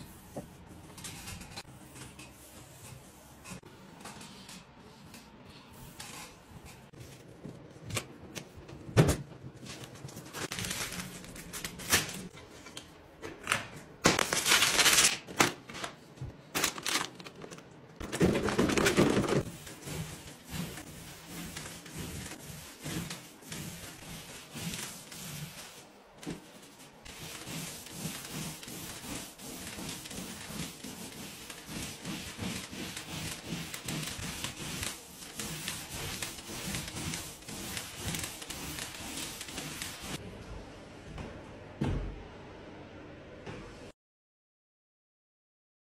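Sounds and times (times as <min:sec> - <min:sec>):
scraping on wall: 0:27.1 - 0:40.2.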